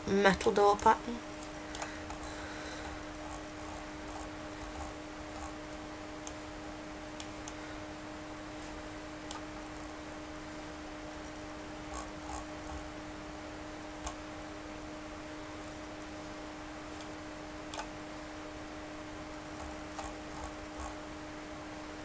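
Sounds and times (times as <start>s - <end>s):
low hum: 0.0s - 22.0s
computer mouse clicking: 17.7s - 17.9s, 19.6s - 21.0s.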